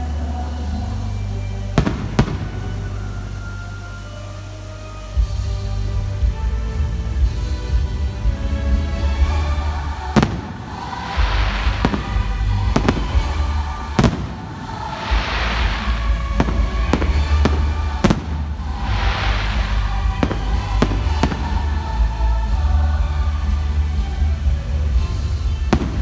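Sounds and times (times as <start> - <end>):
firework crackle: 1.1 - 6.4, 9.1 - 24.0, 24.7 - 26.0
firework shells bursting: 10.2 - 21.6.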